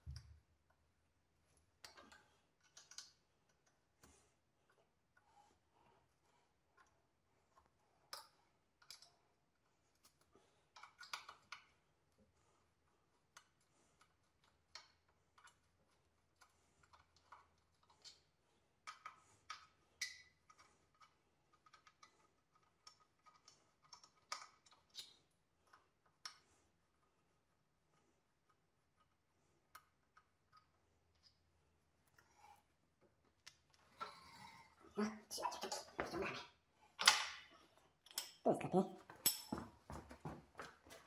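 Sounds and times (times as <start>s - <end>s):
clicks and knocks of metal parts handled: 1.8s - 3.8s, 8.1s - 9.1s, 9.9s - 11.7s, 18.8s - 26.4s.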